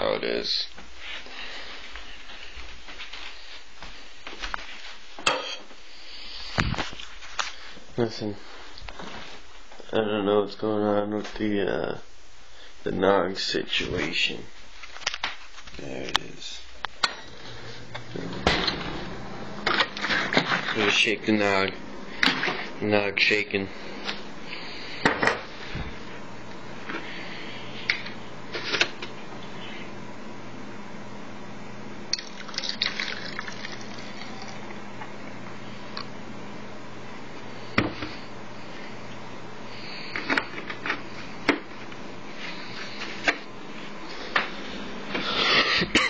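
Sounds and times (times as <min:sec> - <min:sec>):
plastic jug rustling and scraping: 0:19.7 - 0:21.1.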